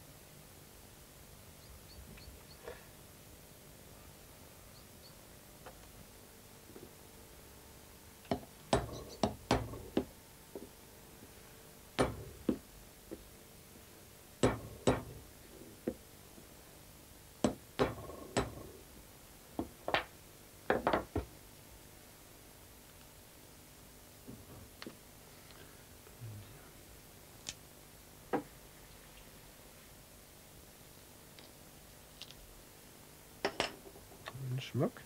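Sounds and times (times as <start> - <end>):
hand tools knocking on workbench: 8.3 - 10.1, 12.0 - 12.6, 14.4 - 15.2, 17.4 - 18.7.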